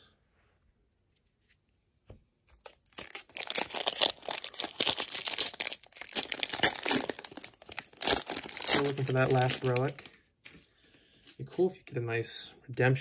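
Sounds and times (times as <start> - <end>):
foil wrapper tearing and crinkling: 2.5 - 10.1.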